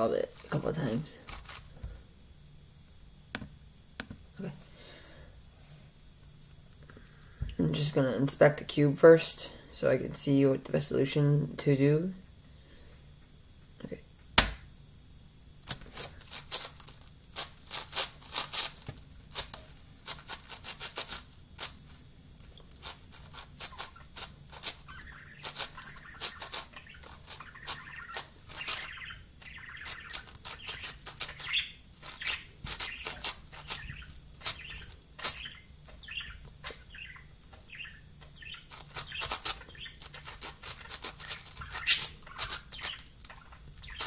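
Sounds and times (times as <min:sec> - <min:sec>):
sharp knock: 0:14.4 - 0:14.7.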